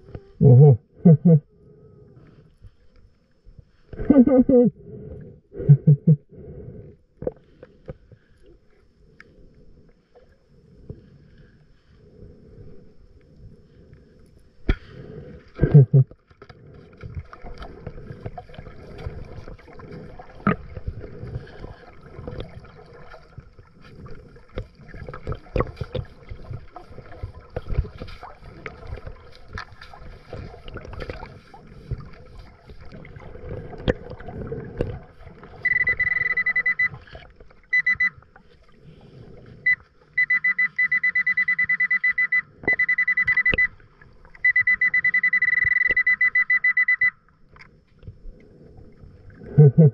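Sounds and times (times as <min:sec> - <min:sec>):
underwater rustling and knocks: 0:14.6 - 0:36.0
metal detector rapid high beeping: 0:35.6 - 0:37.0, 0:37.7 - 0:38.2, 0:39.7 - 0:43.8, 0:44.4 - 0:47.2.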